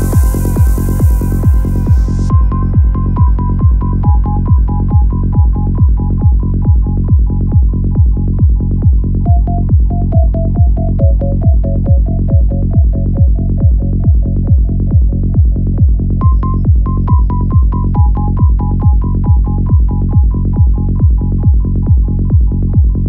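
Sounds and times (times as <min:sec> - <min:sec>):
repeating synth melody: 0:00.0 - 0:06.4, 0:09.3 - 0:12.9
psytrance kick and bassline: 0:00.0 - 0:23.0.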